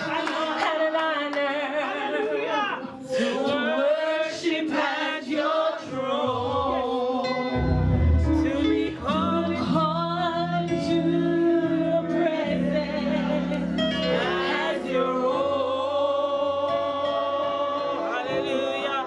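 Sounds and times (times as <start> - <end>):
woman singing gospel through speakers: 0.0 - 2.3, 3.1 - 19.0
low held accompaniment notes: 7.6 - 14.7.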